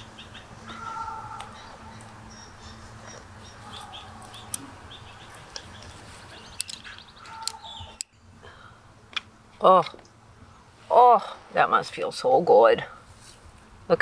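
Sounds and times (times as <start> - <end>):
birds chirping and calling: 0.0 - 10.8
low outdoor background: 0.0 - 14.0.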